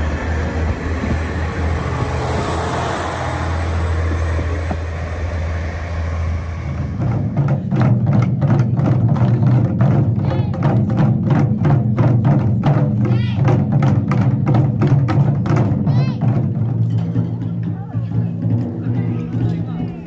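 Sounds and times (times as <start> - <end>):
railcar engine humming: 0.0 - 7.7
taiko drums: 3.6 - 20.0.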